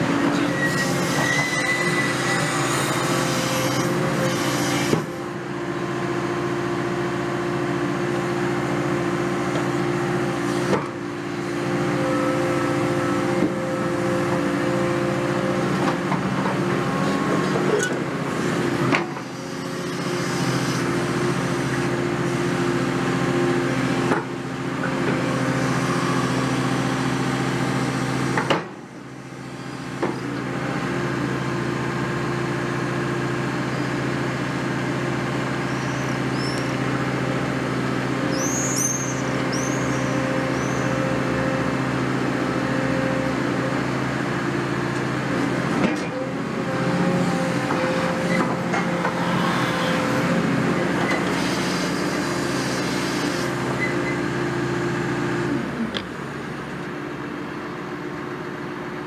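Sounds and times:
excavator diesel engine running: 0:00.0 - 0:59.0.

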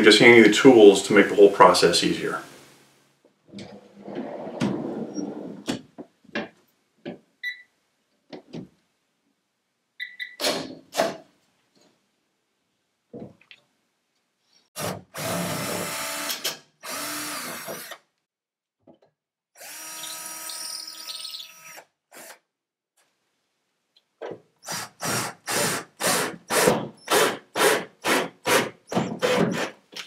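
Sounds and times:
cordless drill driving screws: 0:14.8 - 0:18.0, 0:19.6 - 0:22.4.

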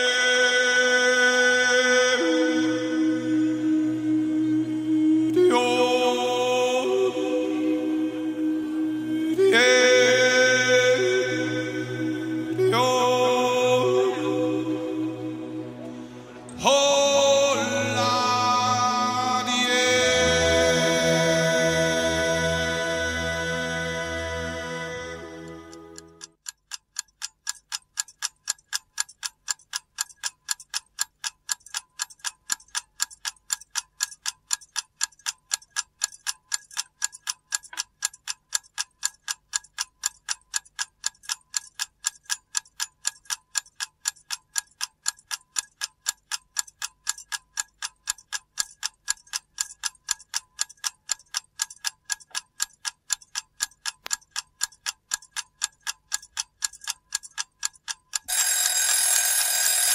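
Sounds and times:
mechanical clock ticking: 0:09.2 - 0:59.9.

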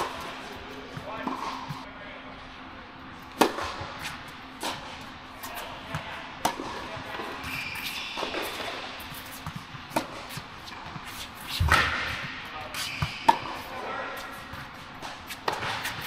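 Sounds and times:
racket hitting tennis ball: 0:00.0 - 0:01.8, 0:03.3 - 0:16.0
tennis ball bouncing: 0:03.3 - 0:04.9, 0:05.5 - 0:13.7, 0:14.5 - 0:16.0.

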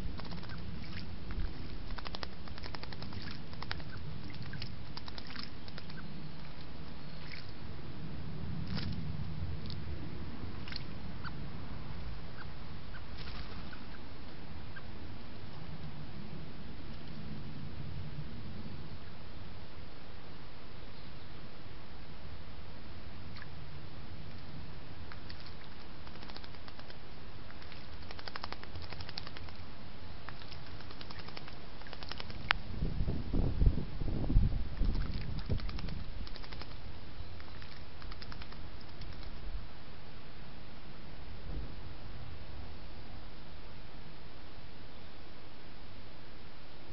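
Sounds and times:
microphone hiss: 0:00.0 - 0:46.9
bird splashing in water: 0:00.1 - 0:07.6, 0:25.1 - 0:29.6, 0:30.3 - 0:32.5, 0:34.8 - 0:39.4.

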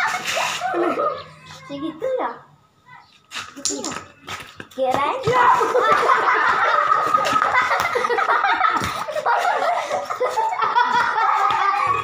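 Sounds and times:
children laughing and giggling: 0:00.0 - 0:02.2, 0:05.2 - 0:12.0.

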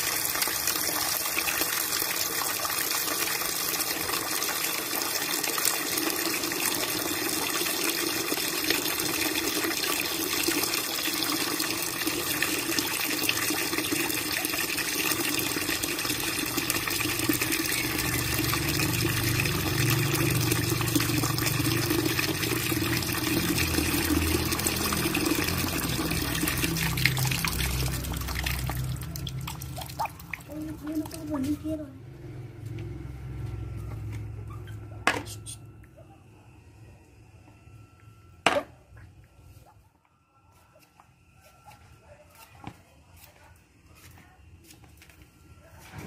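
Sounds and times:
water pouring into basin: 0:00.0 - 0:31.3.

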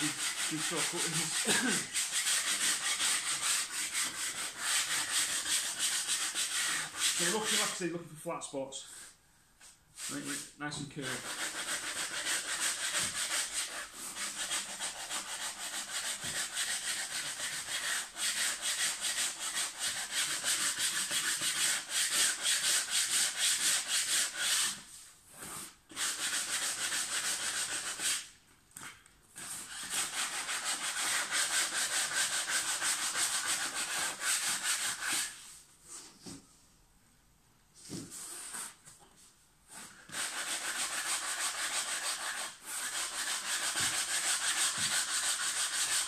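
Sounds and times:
sandpaper rubbing on wood: 0:00.0 - 0:07.8, 0:10.0 - 0:28.3, 0:29.4 - 0:35.5, 0:39.7 - 0:46.0.

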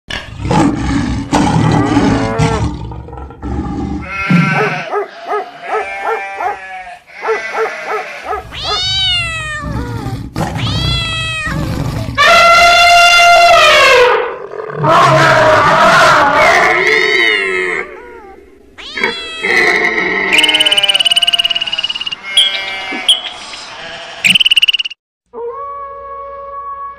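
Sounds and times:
animal cries rising and falling: 0:04.0 - 0:24.3.

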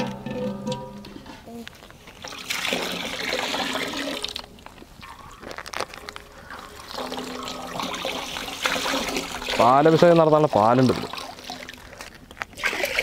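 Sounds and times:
milk pouring into metal pot: 0:02.2 - 0:13.0.

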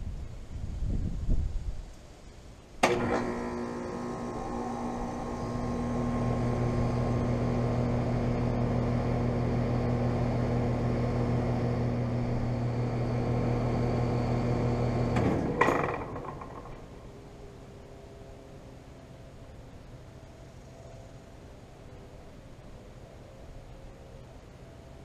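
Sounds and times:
clunk: 0:02.8 - 0:03.5, 0:15.1 - 0:16.9
air conditioner compressor hum: 0:02.8 - 0:19.1.

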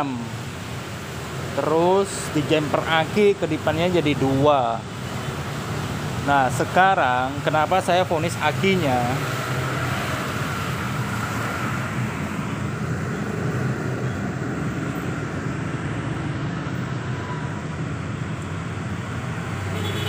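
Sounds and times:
engine droning: 0:00.0 - 0:20.0.

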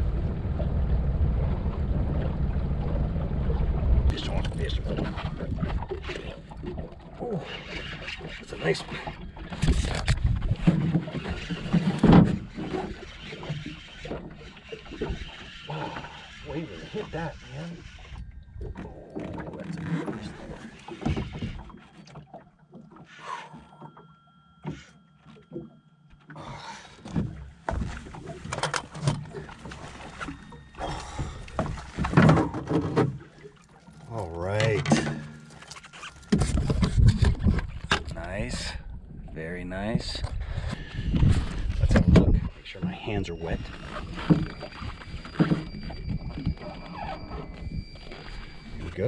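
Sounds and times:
knocks and thuds in boat: 0:00.0 - 0:39.3, 0:39.9 - 0:49.0
knocks and clatter of gear: 0:27.0 - 0:38.2
wind noise: 0:36.3 - 0:49.0.

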